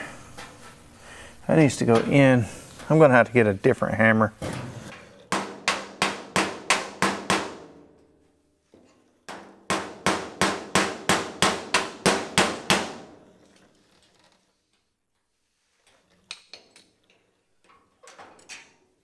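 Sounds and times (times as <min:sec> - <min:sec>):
hammer striking steel: 0:05.3 - 0:07.8.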